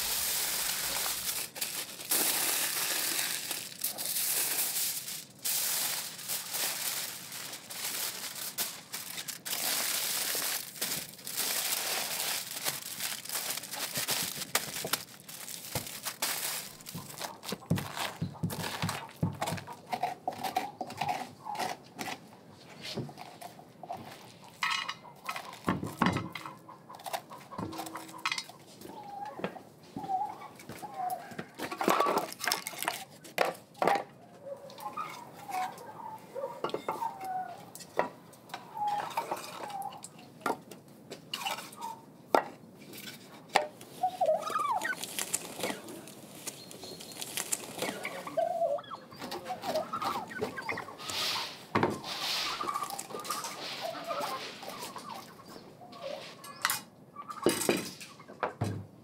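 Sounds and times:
fowl clucking: 26.3 - 29.4, 47.8 - 58.4.

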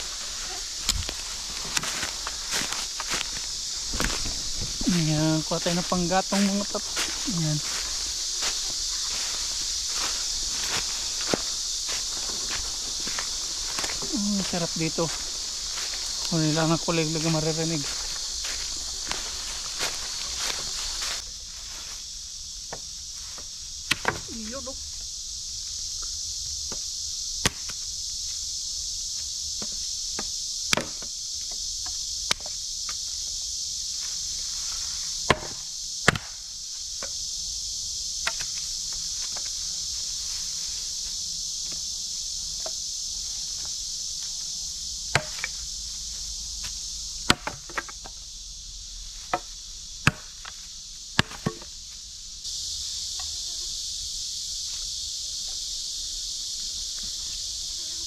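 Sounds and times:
crickets chirping: 0.0 - 58.0
firewood chopping: 23.9 - 24.3, 27.4 - 27.8, 29.6 - 31.1, 35.3 - 36.4, 45.1 - 45.6, 47.2 - 48.0, 49.3 - 50.6, 51.2 - 51.7.

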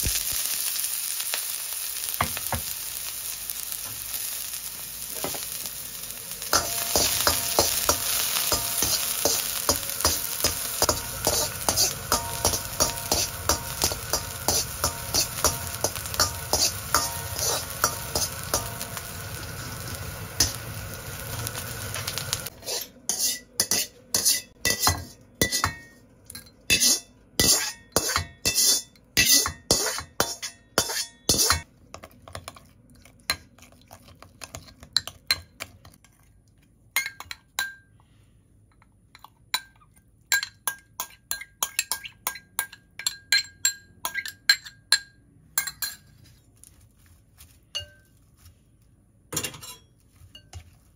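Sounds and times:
food sizzling in hot oil: 0.0 - 24.8
metal ladle scraping a pan: 6.5 - 20.6, 21.9 - 25.8, 26.7 - 31.6
spoon clinking against glass bowl: 39.1 - 46.2.

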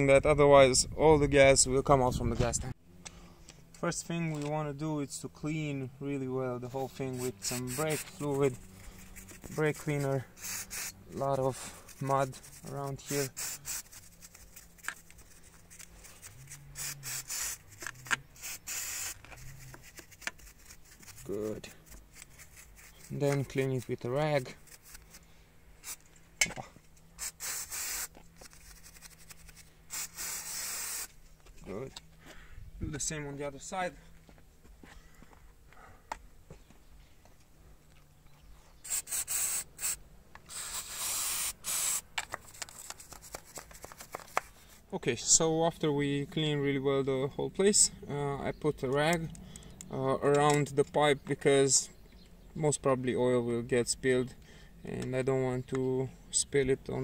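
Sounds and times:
bristle brush scrubbing metal: 6.7 - 25.2, 27.2 - 31.1
aerosol spray hissing: 7.1 - 11.0, 11.7 - 14.8, 15.4 - 17.8, 18.4 - 19.2, 27.2 - 28.1, 29.9 - 31.1, 38.8 - 42.0.

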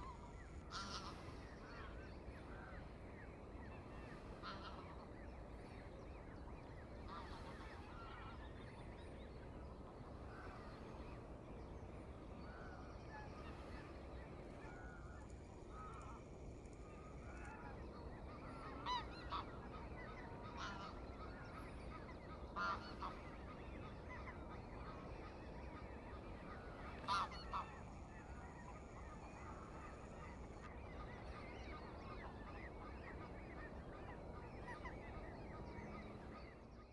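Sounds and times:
geese honking: 0.0 - 2.7, 4.2 - 5.1, 7.0 - 8.4, 12.4 - 36.8.

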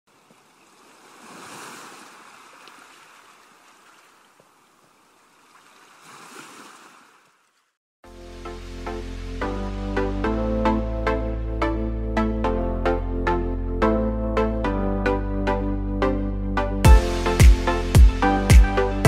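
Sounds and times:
gentle waves washing on shore: 0.1 - 7.7
electronic music: 8.2 - 19.0.

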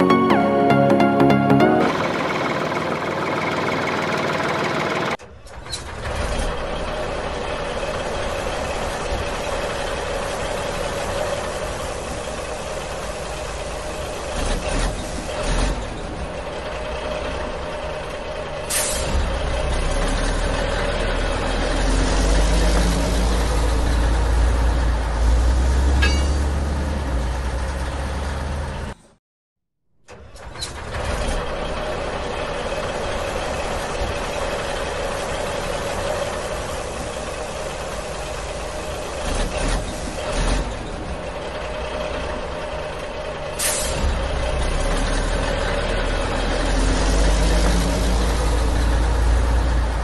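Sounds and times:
heavy truck engine running: 0.0 - 29.1, 30.1 - 50.0
air brake hiss: 18.7 - 19.2, 43.6 - 44.1.

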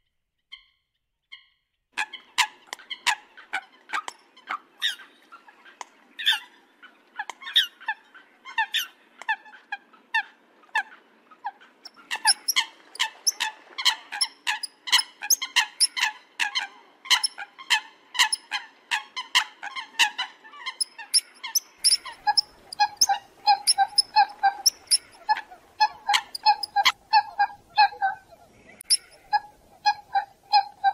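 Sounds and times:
coot calling: 11.9 - 30.9.

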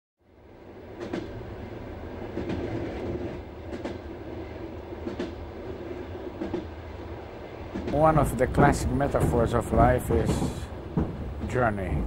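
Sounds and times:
train rumbling on rails: 0.2 - 12.0
wheels clicking over rail joints: 7.7 - 12.0.

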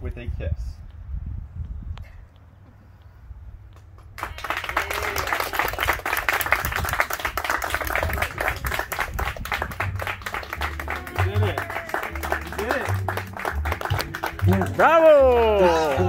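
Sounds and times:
crowd clapping: 3.8 - 16.0.

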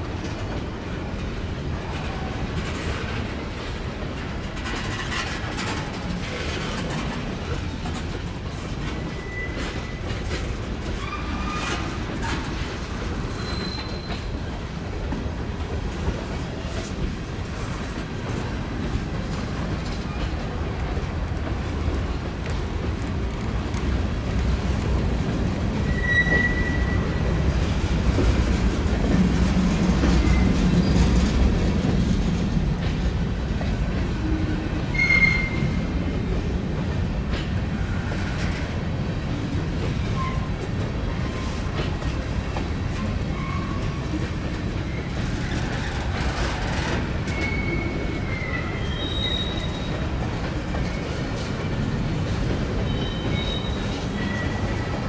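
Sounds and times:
train rumbling on track: 0.0 - 55.0
train wheels squealing: 8.6 - 12.4, 13.0 - 14.6, 25.8 - 27.5, 30.1 - 31.2, 34.3 - 35.9, 39.9 - 40.6, 43.0 - 51.4, 52.8 - 55.0.

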